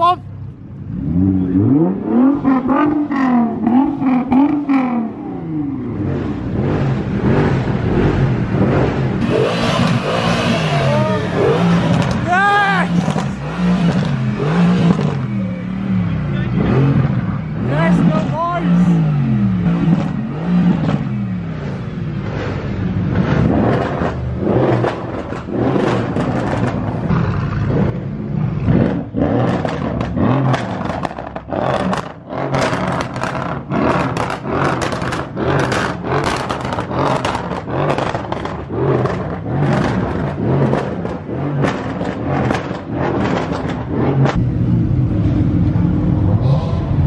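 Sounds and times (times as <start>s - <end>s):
car engine revving: 0.0s - 47.0s
exhaust cracks: 6.5s - 15.4s, 19.6s - 28.0s, 28.6s - 47.0s.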